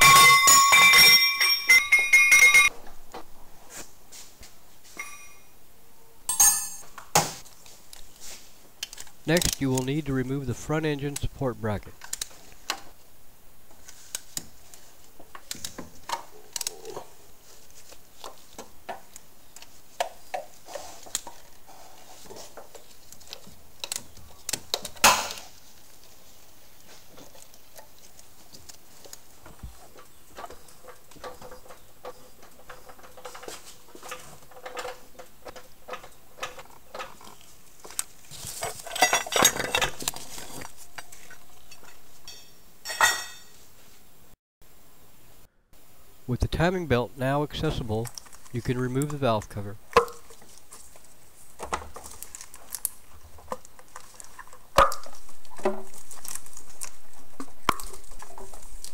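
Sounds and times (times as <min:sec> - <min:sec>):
hand tools clinking on metal: 0:00.0 - 0:02.7, 0:05.0 - 0:05.5, 0:06.3 - 0:07.0, 0:38.5 - 0:40.6, 0:41.7 - 0:43.5
metal clank: 0:06.3 - 0:07.0.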